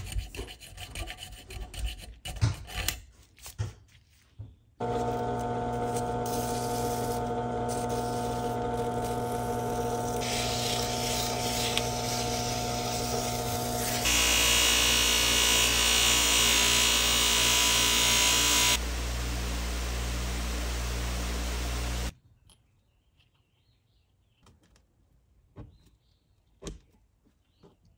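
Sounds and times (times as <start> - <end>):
electric power tool running: 4.8 - 22.1.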